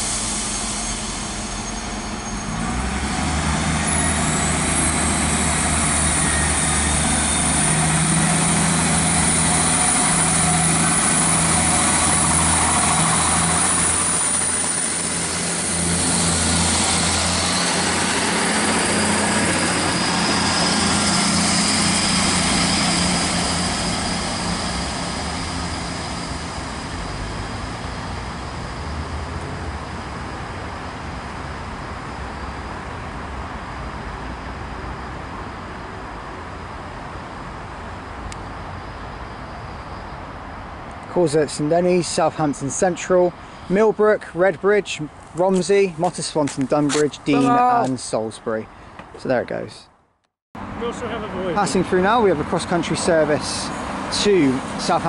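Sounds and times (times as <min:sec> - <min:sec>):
diesel train engines droning: 0:00.0 - 0:50.0, 0:50.6 - 0:55.0.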